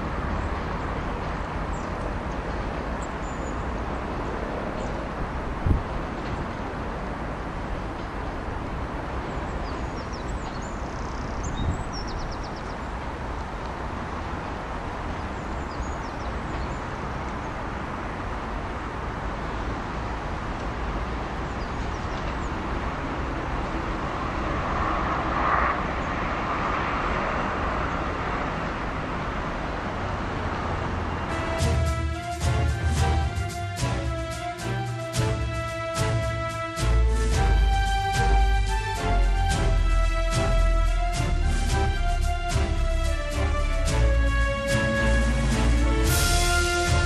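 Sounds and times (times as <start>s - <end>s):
diesel train rumbling away: 30.2s - 47.0s.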